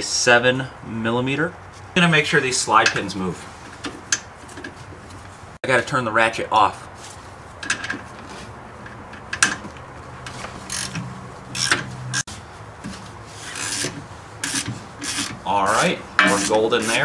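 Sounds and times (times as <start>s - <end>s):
hand ratchet rasping strokes: 10.6s - 12.3s, 13.4s - 15.4s, 16.2s - 17.0s.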